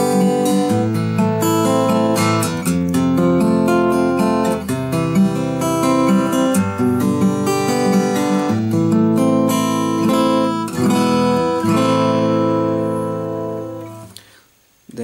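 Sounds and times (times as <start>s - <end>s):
fingerpicked acoustic guitar: 0.0s - 14.6s.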